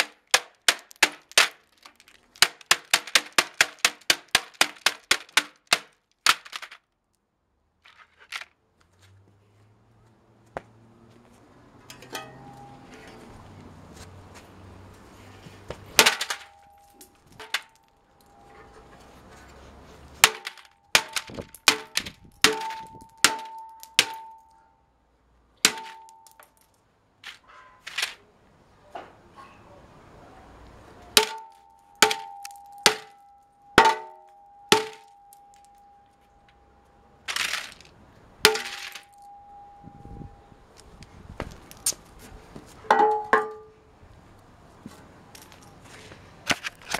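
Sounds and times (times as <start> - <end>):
keyboard smashed on concrete: 0.0 - 6.8, 15.9 - 17.8, 20.2 - 24.4, 25.6 - 26.6, 31.1 - 33.2, 33.8 - 35.7, 38.4 - 39.3.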